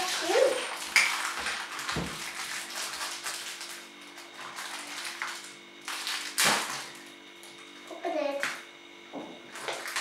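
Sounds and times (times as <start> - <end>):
plastic wrappers crinkling: 0.0 - 7.1, 9.5 - 10.0.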